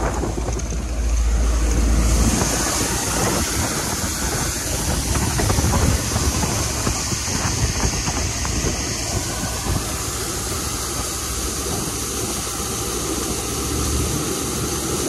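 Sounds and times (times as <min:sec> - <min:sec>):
combine harvester engine rumble: 0:00.0 - 0:15.0
grain pouring hiss: 0:00.0 - 0:15.0.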